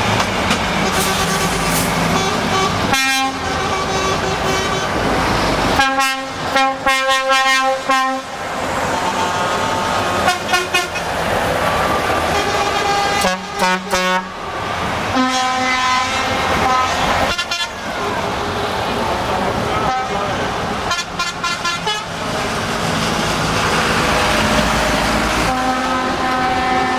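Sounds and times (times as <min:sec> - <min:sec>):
truck engines running: 0:00.0 - 0:26.9
truck air horn blasts: 0:00.8 - 0:05.0, 0:05.8 - 0:08.4, 0:10.2 - 0:11.0, 0:12.2 - 0:14.4, 0:15.1 - 0:18.7, 0:19.7 - 0:22.2, 0:25.4 - 0:26.9.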